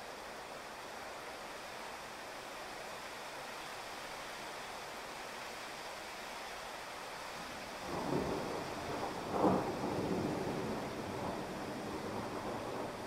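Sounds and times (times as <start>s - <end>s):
heavy rain on a street: 0.0s - 13.0s
thunder rumbling: 7.9s - 13.0s.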